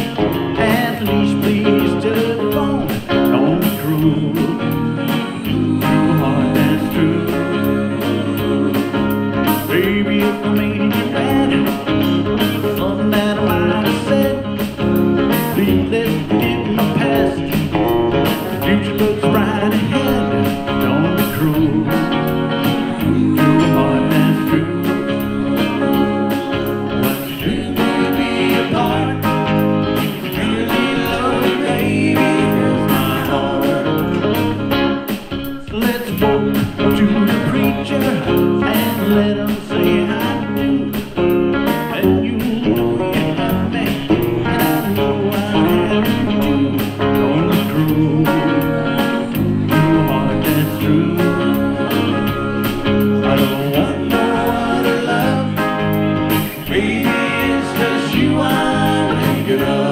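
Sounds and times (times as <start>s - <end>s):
person singing: 0.0s - 34.7s, 35.5s - 59.9s
electric guitars playing: 0.0s - 59.9s
steady beat: 0.0s - 59.9s.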